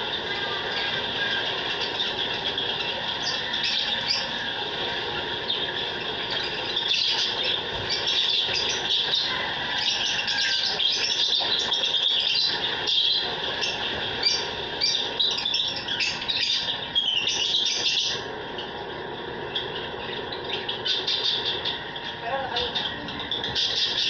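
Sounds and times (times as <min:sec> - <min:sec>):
birds chirping and chattering: 0:00.0 - 0:24.0
steady background noise: 0:00.0 - 0:24.0.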